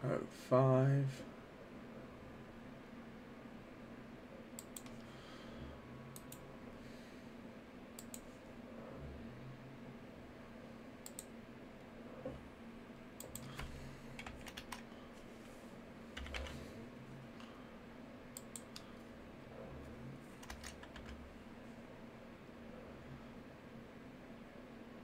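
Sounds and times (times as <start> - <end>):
faint keyboard typing: 4.6 - 5.1, 6.1 - 6.4, 8.0 - 8.4, 11.0 - 11.4, 13.2 - 15.3, 16.1 - 16.7, 18.3 - 19.0, 20.3 - 21.3.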